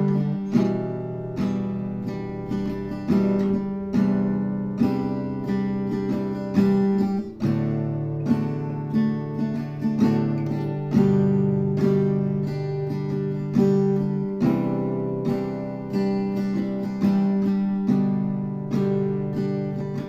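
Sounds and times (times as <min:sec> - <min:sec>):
acoustic guitar chords: 0:00.0 - 0:20.0.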